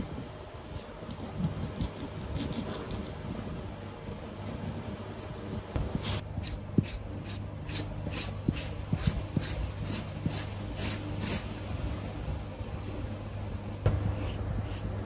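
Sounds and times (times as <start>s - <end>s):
spreader scraping paste on leather: 0.7s - 11.5s.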